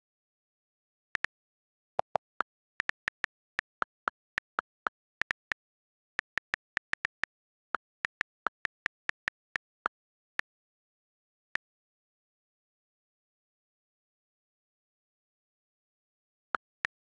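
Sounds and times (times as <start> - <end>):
on-screen keyboard clicks: 2.0 - 10.0.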